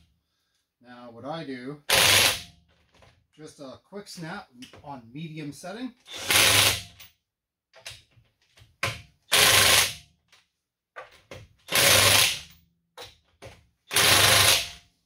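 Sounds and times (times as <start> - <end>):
impact wrench hammering: 11.3 - 14.8.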